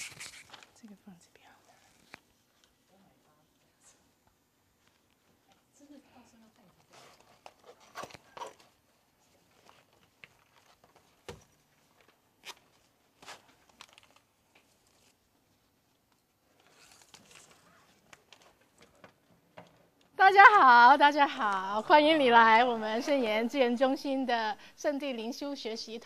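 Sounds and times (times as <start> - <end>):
soft rustle of handling: 0.0 - 20.1.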